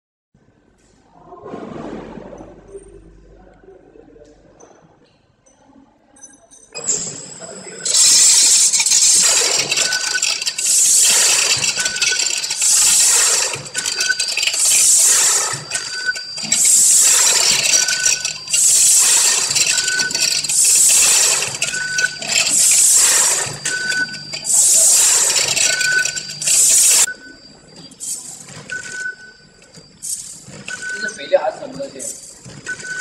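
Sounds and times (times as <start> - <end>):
short high beep: 6.8 - 29.4
packing machine cycling: 7.8 - 27.1.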